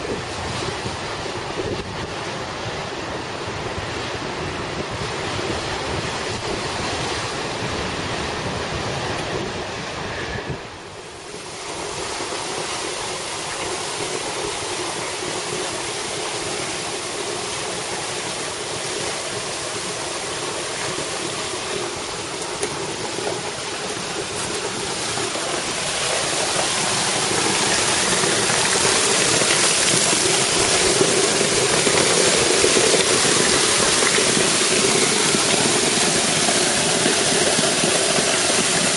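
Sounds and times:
waterfall rushing into pool: 0.0 - 10.2, 10.8 - 38.9
waves breaking on rocky shore: 11.1 - 38.9.

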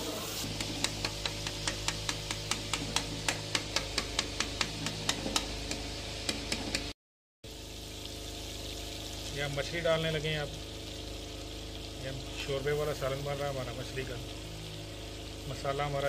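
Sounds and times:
ladle knocking against metal pot: 0.5 - 6.9
sauce bubbling: 7.5 - 16.0.

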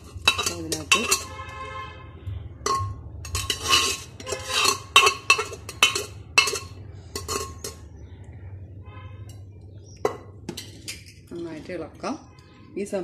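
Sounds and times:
metal ladle clanking and scraping: 0.0 - 1.6, 2.6 - 8.1, 9.1 - 11.4.

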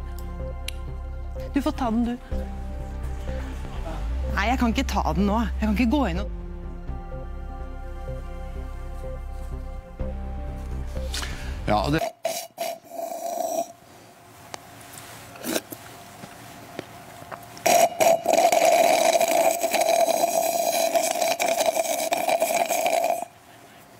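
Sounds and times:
slurping through a plastic straw: 17.7 - 23.3.

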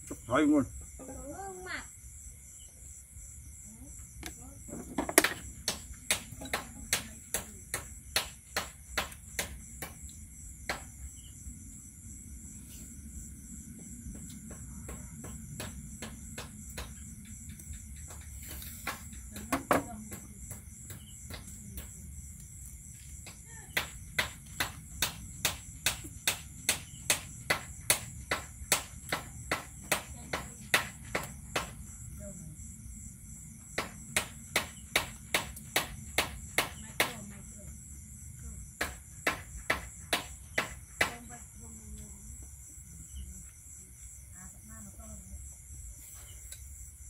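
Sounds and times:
crickets chirping: 0.0 - 47.0
night insects trilling: 0.0 - 47.0
sharp knocks: 4.7 - 10.0, 14.1 - 17.0, 23.2 - 31.8, 33.8 - 37.3, 38.8 - 41.2.

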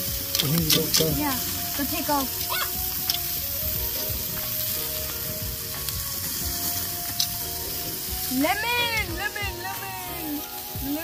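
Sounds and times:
meat sizzling on a grill: 0.0 - 11.0
metal tongs clicking: 0.2 - 1.2, 3.0 - 3.3.

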